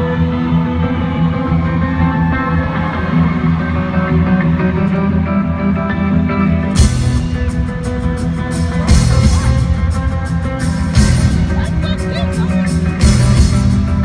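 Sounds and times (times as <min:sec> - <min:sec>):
live rock band: 0:00.0 - 0:14.0
drums and cymbals: 0:06.8 - 0:14.0.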